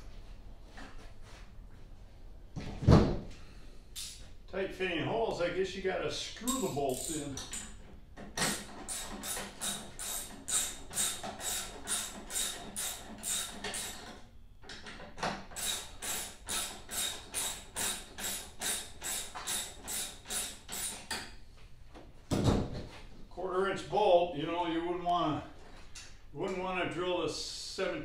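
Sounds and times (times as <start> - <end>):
ratchet wrench clicking: 6.5 - 7.7, 8.4 - 14.0, 15.6 - 21.2.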